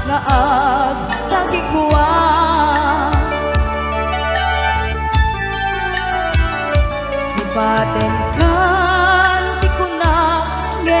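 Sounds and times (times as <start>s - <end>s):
keyboard chords: 0.0s - 11.0s
electronic drum beat: 4.8s - 8.9s.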